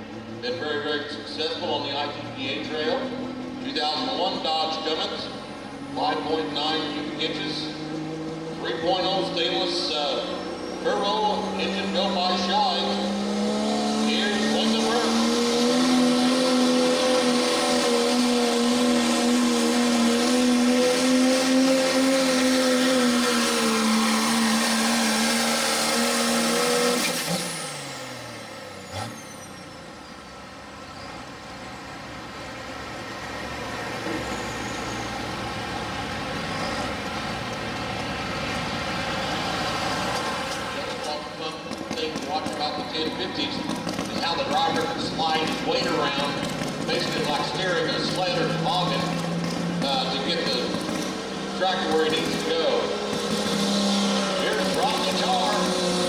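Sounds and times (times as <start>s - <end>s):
diesel pickup engine at full throttle: 0.0s - 56.0s.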